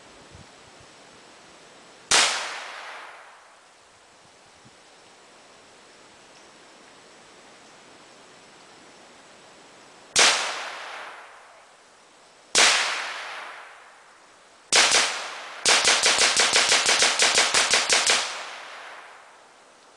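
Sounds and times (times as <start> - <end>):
semi-automatic gunshots echoing: 10.2 - 11.4, 14.7 - 19.4.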